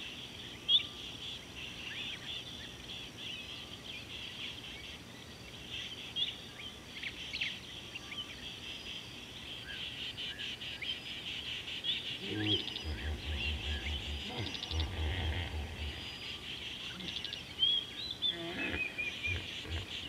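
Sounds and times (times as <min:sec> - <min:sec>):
insects chirping: 0:00.1 - 0:20.0
sweeping bird calls: 0:09.7 - 0:20.0
rapid pulsed calls: 0:12.2 - 0:17.6.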